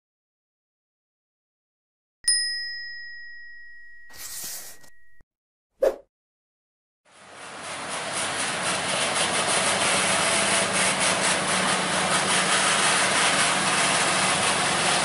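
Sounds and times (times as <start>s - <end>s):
notification bell ding: 2.2s - 5.2s.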